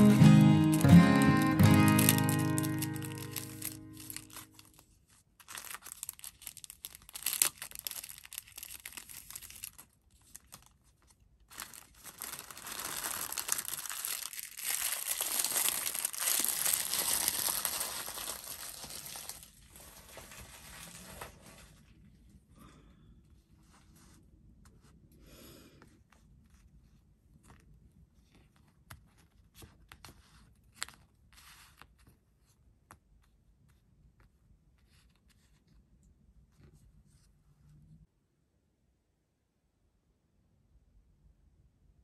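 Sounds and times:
acoustic guitar music: 0.0 - 4.6
crinkling and rustling handling: 0.7 - 22.5, 25.8 - 37.4.

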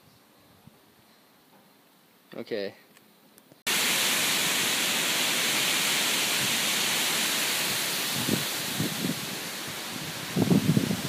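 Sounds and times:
wind rushing through trees: 3.7 - 11.0
wind buffeting microphone: 6.3 - 11.0.

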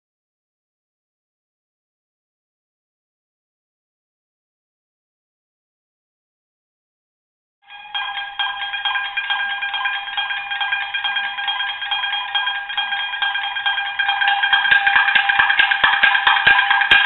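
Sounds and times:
shamisen plucked notes: 7.7 - 17.0.

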